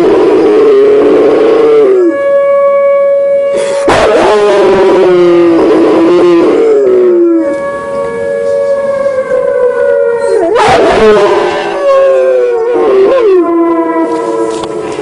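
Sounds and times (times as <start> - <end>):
dog howling: 3.9 - 7.6, 8.5 - 14.7.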